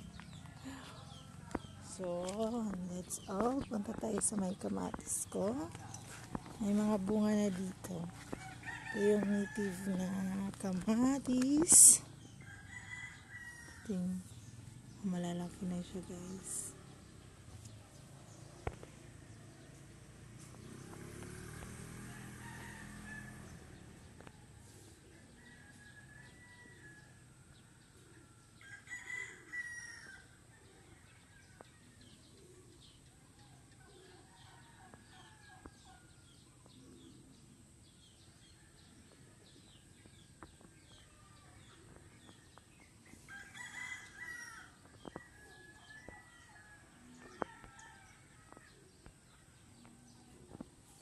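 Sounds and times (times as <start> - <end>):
rooster crowing: 8.2 - 9.9, 12.4 - 13.9, 22.0 - 23.8, 25.3 - 27.2, 28.6 - 31.0, 43.3 - 48.8.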